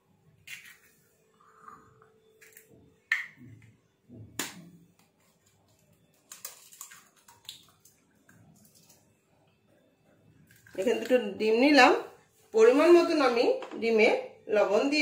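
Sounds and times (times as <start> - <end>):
eggshell cracking: 6.1 - 8.0.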